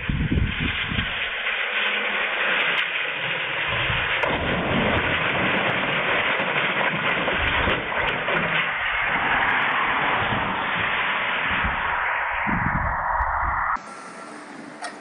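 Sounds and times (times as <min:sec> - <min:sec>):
rushing water hiss: 0:00.0 - 0:15.0.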